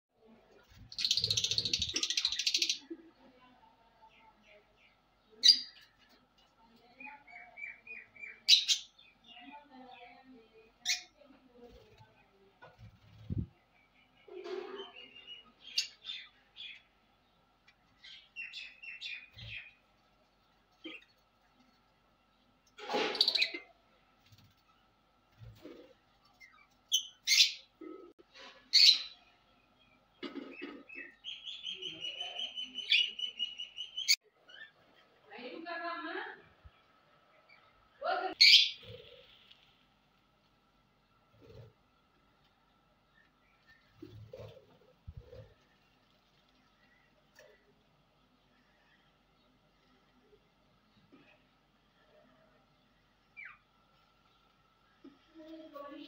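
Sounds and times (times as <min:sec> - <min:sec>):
lovebirds chirping: 0:00.5 - 0:11.9, 0:12.9 - 0:22.5, 0:28.7 - 0:35.1, 0:41.1 - 0:56.0.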